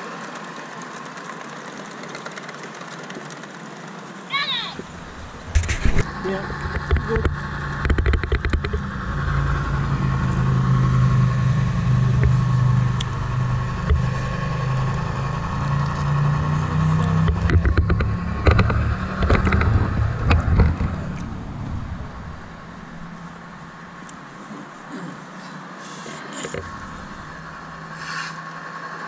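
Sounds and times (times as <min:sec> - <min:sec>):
diesel engine drone: 0:00.0 - 0:29.0
sharp clicks and knocks: 0:04.8 - 0:09.0, 0:12.0 - 0:24.2, 0:26.4 - 0:27.8.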